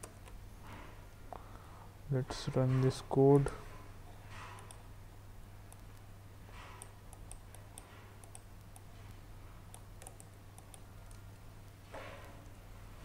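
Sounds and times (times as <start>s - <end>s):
low steady hum: 0.0s - 13.0s
mouse and keyboard clicking: 4.5s - 4.8s, 6.7s - 12.6s.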